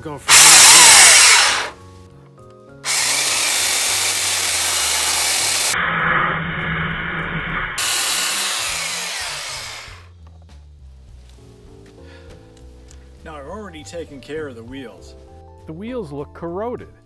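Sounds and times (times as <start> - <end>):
belt sander grinding plastic: 0.3 - 1.7, 2.9 - 5.8, 7.8 - 10.0.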